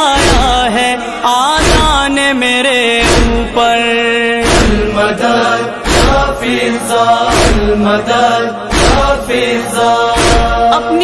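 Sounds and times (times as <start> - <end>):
chest-beating thumps: 1.6 - 2.2, 3.0 - 3.7, 4.4 - 7.9, 8.7 - 10.9
voices chanting in unison: 3.0 - 11.0.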